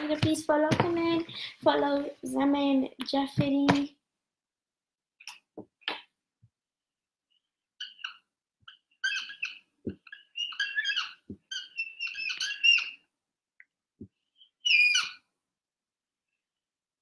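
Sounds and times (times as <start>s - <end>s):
marker squeaking on whiteboard: 7.3s - 13.1s, 14.1s - 15.3s.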